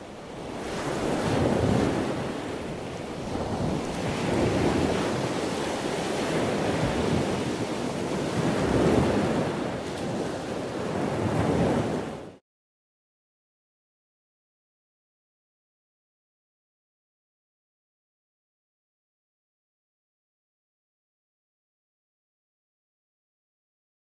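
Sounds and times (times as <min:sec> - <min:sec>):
ocean waves washing in: 0:00.0 - 0:12.4.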